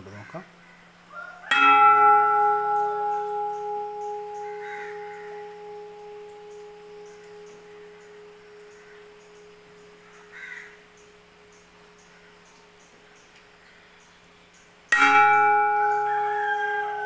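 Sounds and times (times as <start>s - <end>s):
bronze vessel ringing: 1.5s - 12.8s, 14.9s - 17.0s.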